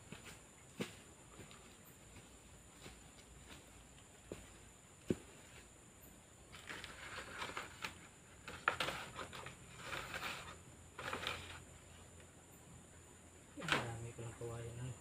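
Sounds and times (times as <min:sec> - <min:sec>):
bamboo poles scraping and knocking: 0:06.5 - 0:11.7.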